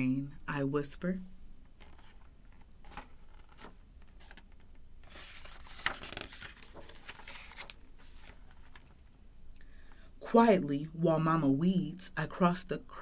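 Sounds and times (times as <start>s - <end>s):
paper page turning: 1.8s - 9.0s.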